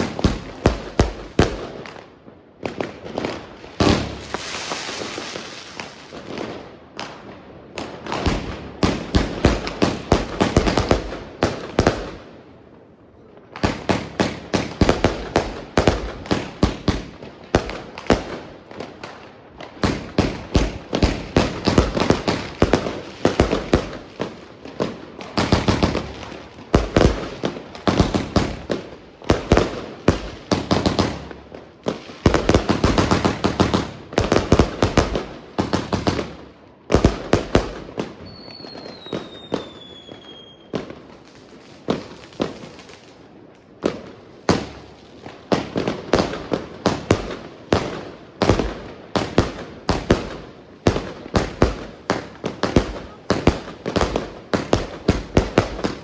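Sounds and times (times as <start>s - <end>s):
fireworks bangs and cracks: 0.0s - 56.0s
falling firework whistles: 4.0s - 6.1s, 38.2s - 40.8s.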